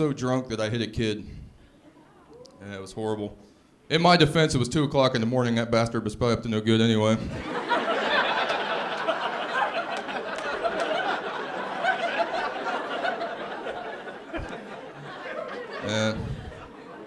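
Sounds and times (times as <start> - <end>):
audience laughing: 7.2 - 17.0.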